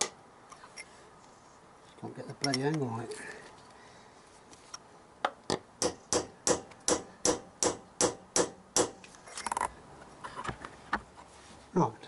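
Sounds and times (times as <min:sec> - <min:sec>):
hammer striking chisel: 0:05.8 - 0:09.0.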